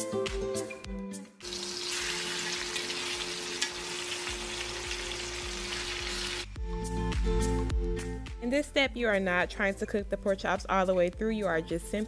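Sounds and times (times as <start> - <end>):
meat sizzling in oil: 1.4 - 6.5.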